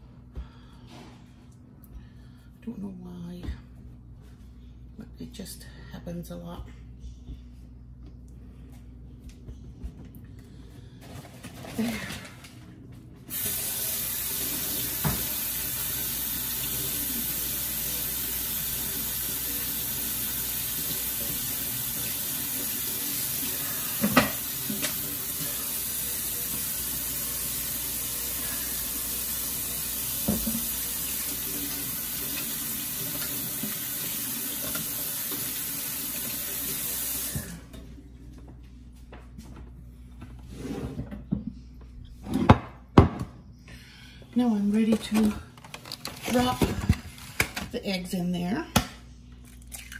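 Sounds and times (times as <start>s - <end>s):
faucet running into metal sink: 13.3s - 37.5s.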